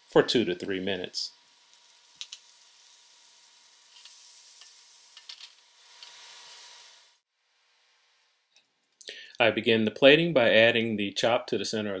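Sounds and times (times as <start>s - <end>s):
beans sizzling in oil: 0.0s - 7.3s.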